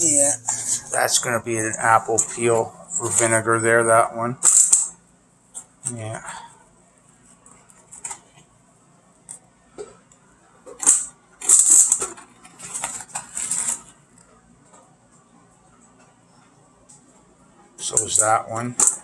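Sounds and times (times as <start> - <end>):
metal bowl scraping and rustling: 11.4 - 14.0.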